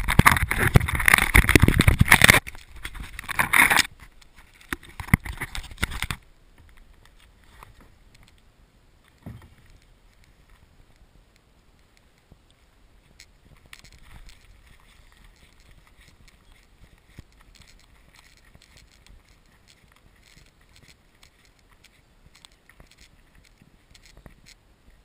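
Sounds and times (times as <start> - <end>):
camera handling rumble: 0.0 - 8.4, 13.1 - 24.6
footsteps on dirt path: 12.0 - 25.0.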